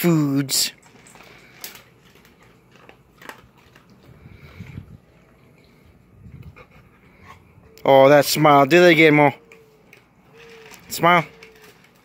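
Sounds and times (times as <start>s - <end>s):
dog crunching kibble: 0.7s - 5.5s.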